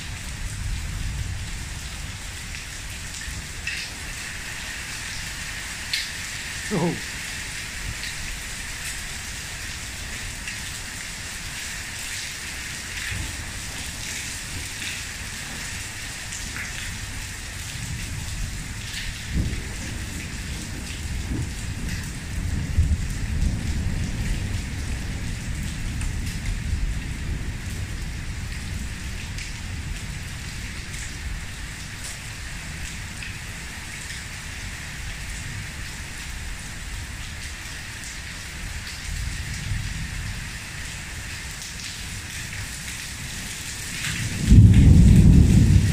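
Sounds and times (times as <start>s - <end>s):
heavy rain pouring: 0.0s - 45.9s
low thunder rumble: 16.8s - 31.8s, 44.0s - 45.9s.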